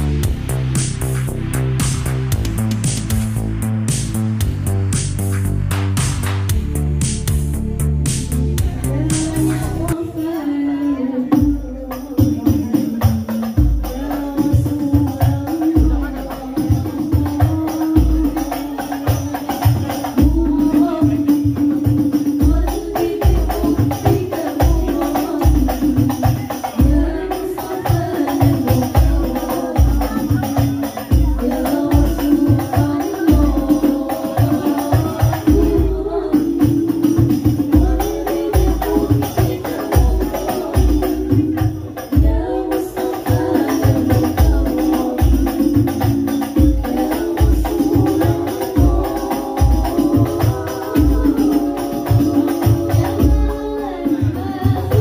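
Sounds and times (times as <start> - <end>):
music with steady beat: 0.0 - 10.5, 11.3 - 55.0.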